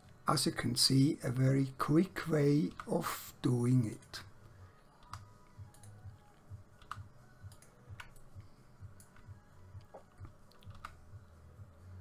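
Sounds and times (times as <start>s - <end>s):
keyboard and mouse clicks: 5.0s - 8.4s, 9.0s - 11.0s.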